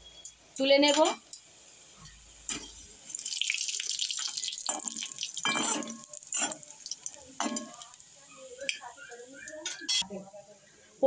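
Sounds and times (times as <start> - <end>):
hot oil sizzling: 0.0 - 10.0
skimmer scraping wok: 4.6 - 8.5.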